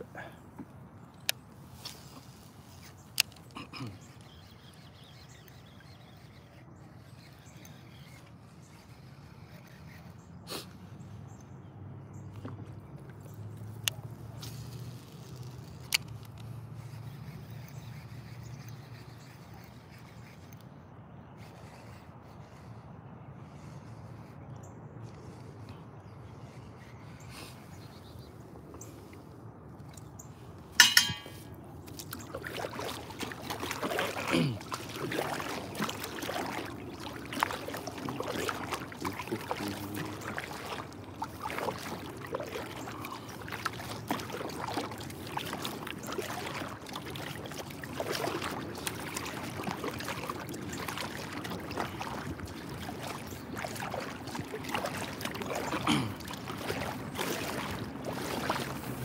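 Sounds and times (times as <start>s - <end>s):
paddle strokes in water: 0.0s - 59.0s.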